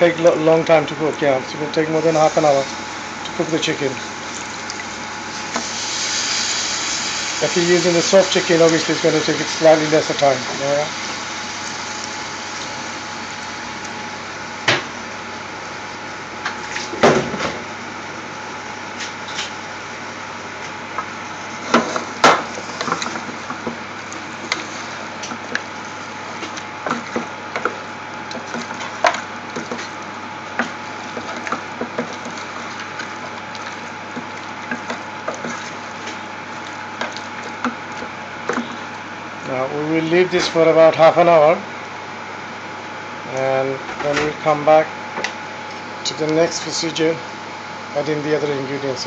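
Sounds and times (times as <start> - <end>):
steady hiss: 0.0 - 13.9
wooden spoon scraping metal pot: 21.6 - 38.9.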